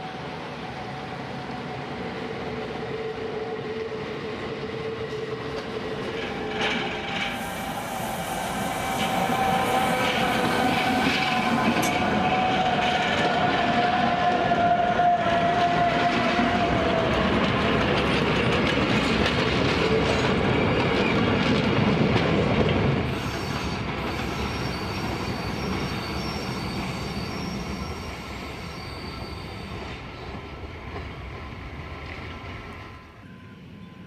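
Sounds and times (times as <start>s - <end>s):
train wheel and running-gear noise: 0.0s - 34.0s
wheels squealing: 23.1s - 30.5s.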